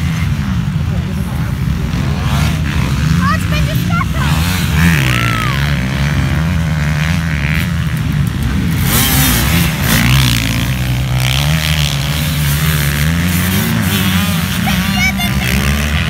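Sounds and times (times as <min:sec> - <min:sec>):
motorcycle engines revving: 0:00.0 - 0:16.0.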